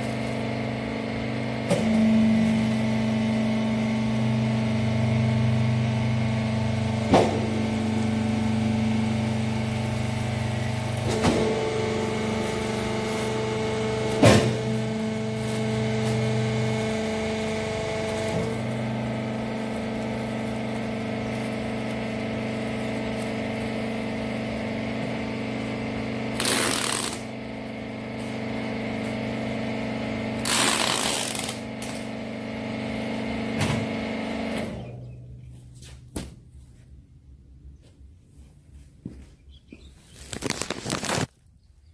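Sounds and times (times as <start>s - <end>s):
hydraulic power pack humming: 0.0s - 37.7s
packing tape tearing off tape gun: 26.3s - 27.3s, 30.4s - 32.0s, 40.2s - 41.4s.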